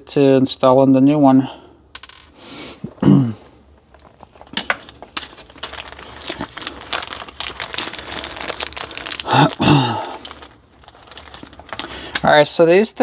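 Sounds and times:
plastic packaging crinkling: 0:03.7 - 0:13.0.

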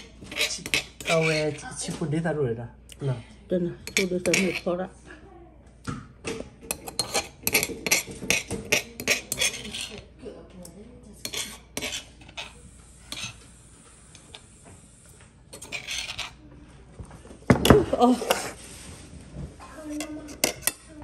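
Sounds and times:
metal spoon scraping stone mortar: 0:00.0 - 0:01.7, 0:03.8 - 0:04.8, 0:06.7 - 0:10.1, 0:11.2 - 0:13.4, 0:15.5 - 0:16.4, 0:18.2 - 0:18.6, 0:19.8 - 0:20.9.

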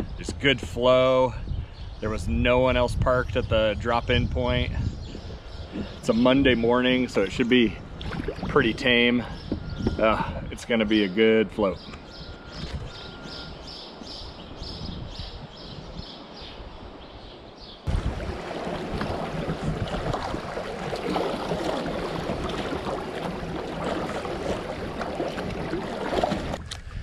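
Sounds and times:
steady wash of water: 0:07.0 - 0:08.8, 0:17.9 - 0:26.7
river water rushing and splashing: 0:17.9 - 0:26.6.

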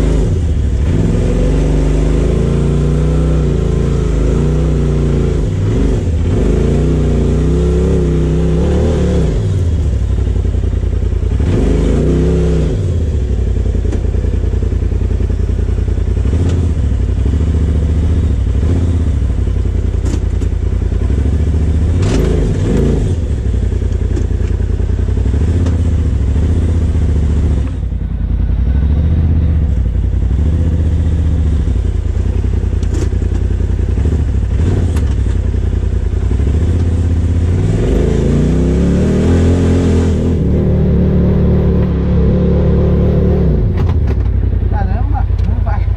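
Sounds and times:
off-road vehicle engine revving: 0:00.0 - 0:45.9
knocks over bumps: 0:43.6 - 0:44.5.

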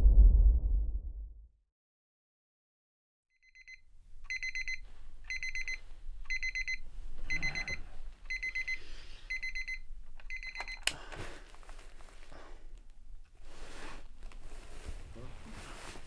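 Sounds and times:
alarm clock beeping: 0:03.4 - 0:10.9.

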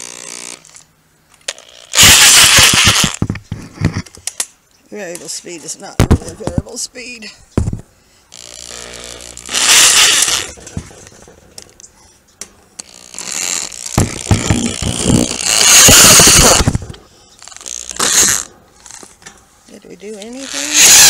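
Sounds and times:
cordless drill spinning: 0:01.6 - 0:03.2, 0:08.3 - 0:10.6, 0:12.8 - 0:19.1, 0:20.3 - 0:21.0.

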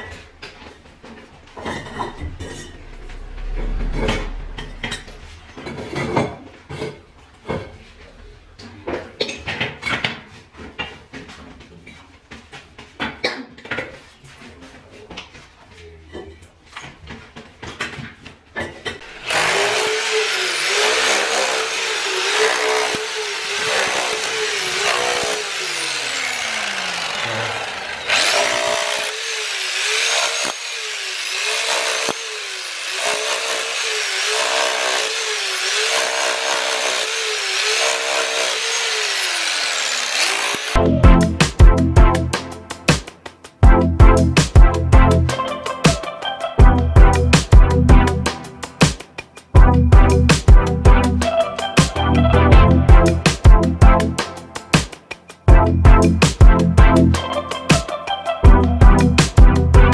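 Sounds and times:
rotary hammer chiselling wall: 0:19.0 - 0:40.8.

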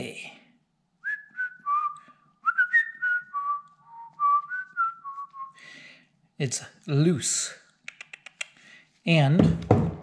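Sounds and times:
person whistling a tune: 0:01.0 - 0:05.6.

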